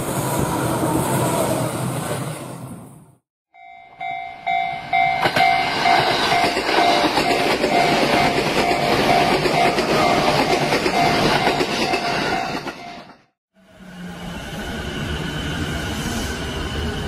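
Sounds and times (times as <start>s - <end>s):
electric train passing: 0.0s - 17.0s
level-crossing alarm ringing: 3.6s - 13.2s.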